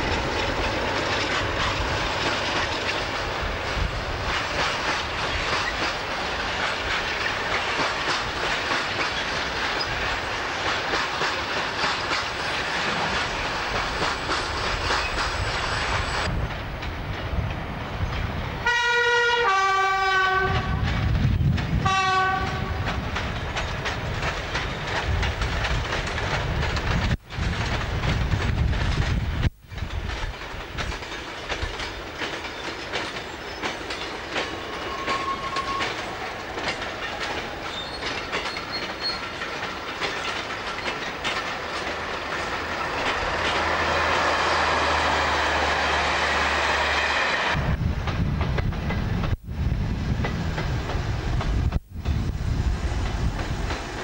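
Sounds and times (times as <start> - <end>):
two-tone locomotive horn: 18.6 - 20.8, 21.8 - 22.9, 34.6 - 36.1
wagons rolling over track: 22.9 - 45.7.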